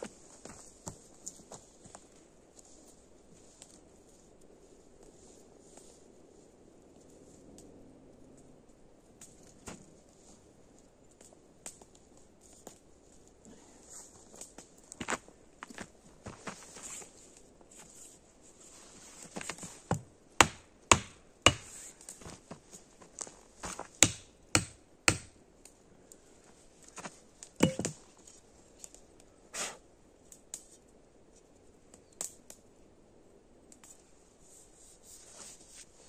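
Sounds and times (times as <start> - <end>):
hatchet chopping wood: 19.9 - 21.8, 23.6 - 25.4, 27.6 - 28.0
knife carving a stick: 19.9 - 21.9, 24.0 - 25.4.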